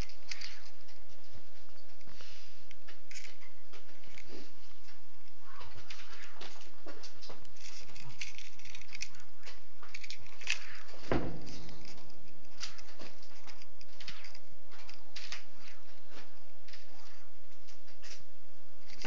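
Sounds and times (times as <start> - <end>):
rustling: 0.0 - 19.0.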